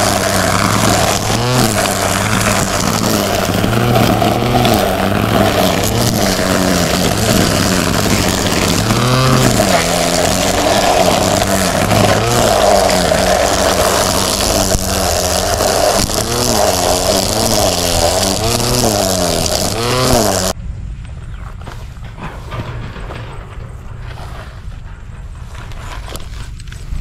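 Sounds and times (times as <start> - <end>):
string trimmer motor whining: 0.0 - 20.6.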